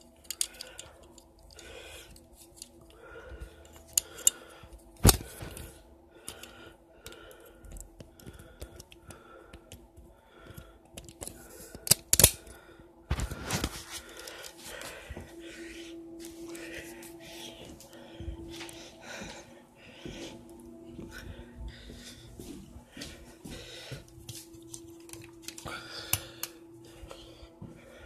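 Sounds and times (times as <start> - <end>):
cap gun mechanical clicks: 11.0 - 12.6
sharp cap gun cracks: 11.9 - 12.5.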